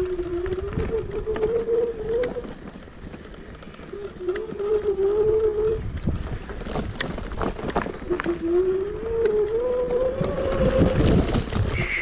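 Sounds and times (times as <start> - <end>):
electric scooter motor whining: 0.0 - 6.5
low rumble over rough ground: 0.0 - 12.0.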